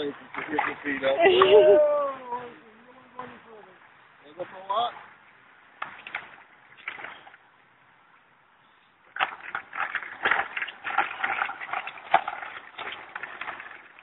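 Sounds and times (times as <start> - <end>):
walker wheels rattling on concrete: 9.5 - 14.0.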